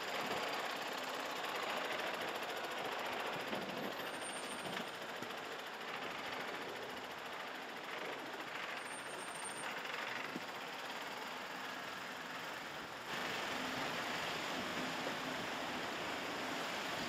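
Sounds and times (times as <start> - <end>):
diesel truck engine at low revs: 9.7 - 17.0
stream water rushing: 13.1 - 17.0.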